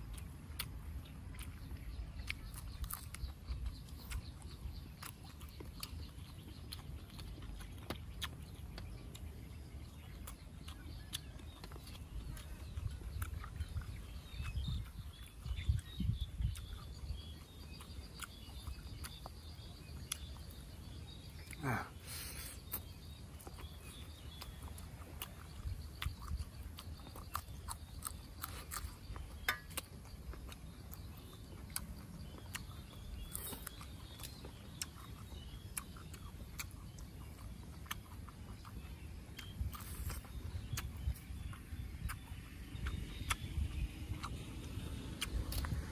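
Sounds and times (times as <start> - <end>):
chewing and mouth smacking: 0.0 - 45.9.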